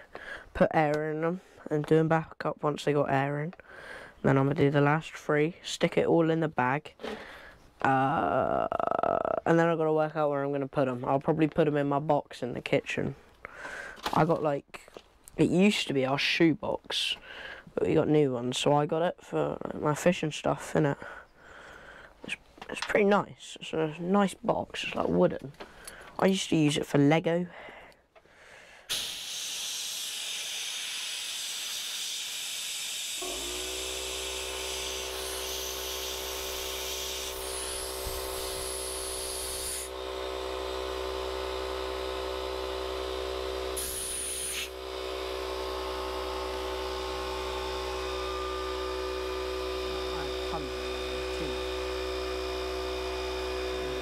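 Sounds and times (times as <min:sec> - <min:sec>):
electric air pump humming: 0:28.8 - 0:54.0
air hissing: 0:28.9 - 0:31.6, 0:43.8 - 0:44.8.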